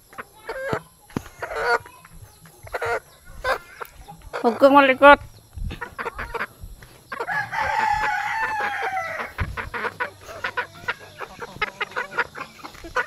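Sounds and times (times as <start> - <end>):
rooster crowing: 7.1 - 12.5.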